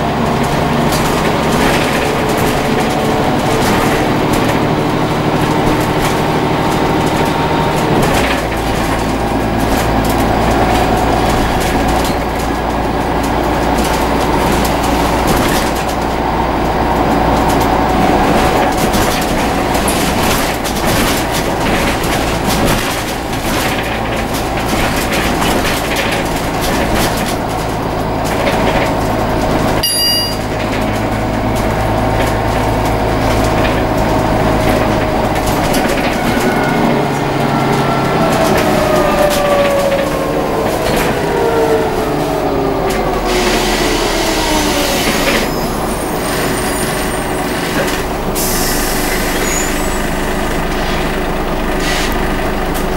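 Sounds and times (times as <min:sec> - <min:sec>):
bus engine running: 0:00.0 - 0:52.9
whine gliding down in pitch: 0:35.8 - 0:45.8.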